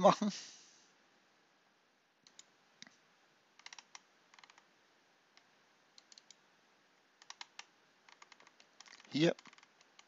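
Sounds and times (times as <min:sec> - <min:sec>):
computer mouse and keys clicking: 0:02.2 - 0:03.0, 0:03.6 - 0:04.7, 0:05.3 - 0:06.4, 0:07.0 - 0:10.0.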